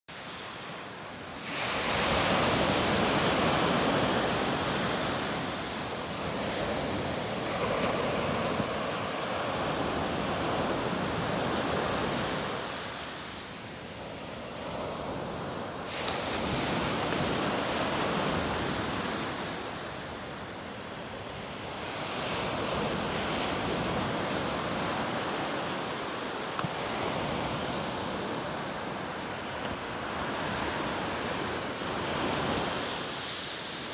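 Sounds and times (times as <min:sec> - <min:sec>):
surf washing up gravel beach: 0:01.3 - 0:13.2, 0:15.6 - 0:19.8, 0:22.3 - 0:33.9.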